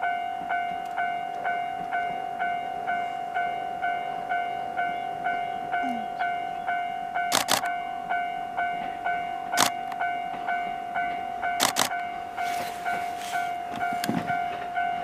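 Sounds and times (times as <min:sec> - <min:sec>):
level-crossing alarm dinging: 0:00.0 - 0:15.0
sharp clicks: 0:07.3 - 0:07.7, 0:09.6 - 0:10.0, 0:11.6 - 0:12.0.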